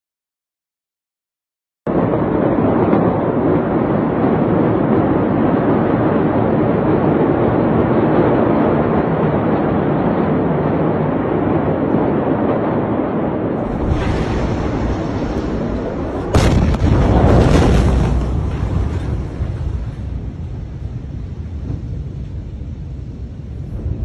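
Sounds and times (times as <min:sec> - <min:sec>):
loud rushing noise: 0:13.6 - 0:21.1.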